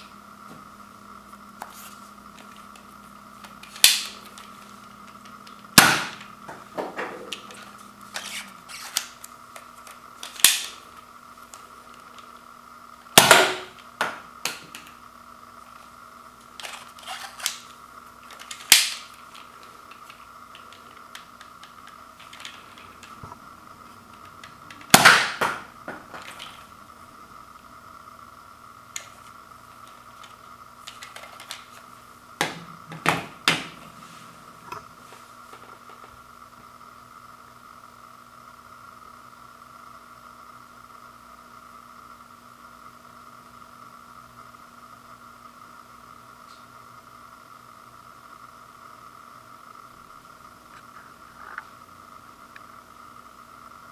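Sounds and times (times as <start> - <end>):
toy dart blaster clicks and snaps: 3.5 - 4.5, 7.3 - 10.8, 13.2 - 15.0, 16.5 - 23.2, 24.1 - 25.6.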